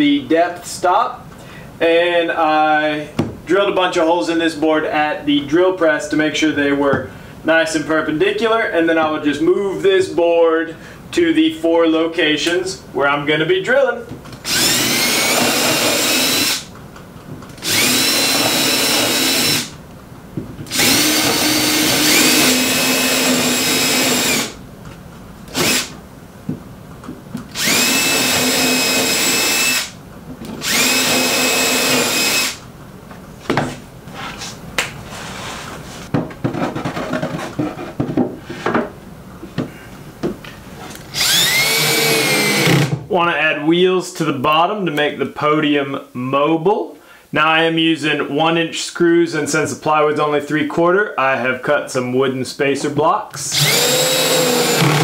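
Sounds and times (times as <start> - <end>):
cordless drill whining: 14.4 - 16.6, 17.6 - 19.7, 20.7 - 24.6, 25.5 - 25.9, 27.5 - 29.9, 30.6 - 32.6, 41.1 - 42.9, 53.5 - 55.0.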